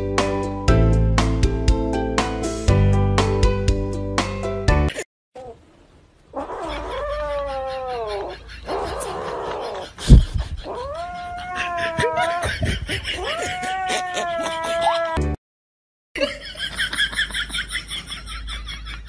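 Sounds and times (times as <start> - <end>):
kitten yowling: 6.4 - 10.0, 10.6 - 12.5, 13.2 - 15.2.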